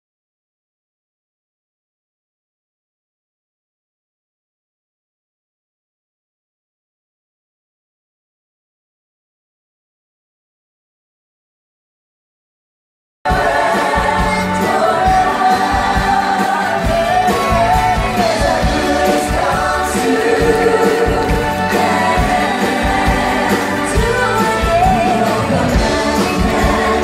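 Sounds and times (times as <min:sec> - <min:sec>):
live band with drums: 0:13.3 - 0:27.0
voices singing pop song: 0:13.3 - 0:27.0.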